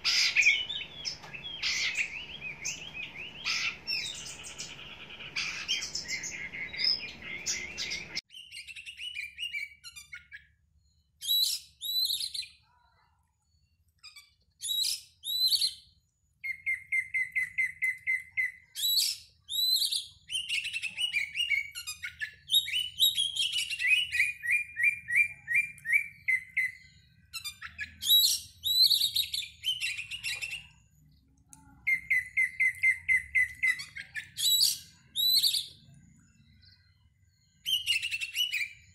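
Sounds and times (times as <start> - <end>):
bird whistling song: 0.0 - 12.6, 14.0 - 31.1, 31.8 - 38.9.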